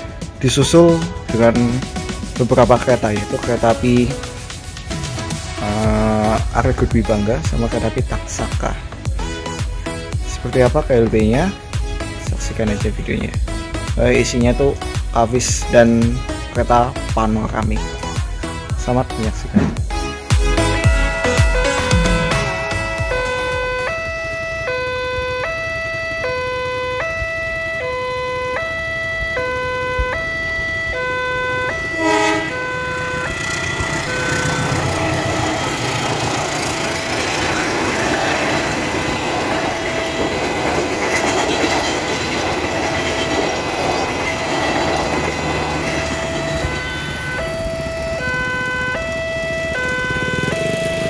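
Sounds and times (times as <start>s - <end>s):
train passing rumble: 0.0s - 51.0s
level crossing alarm: 20.5s - 51.0s
train horn blast: 20.8s - 24.0s, 30.9s - 37.8s, 44.2s - 49.0s.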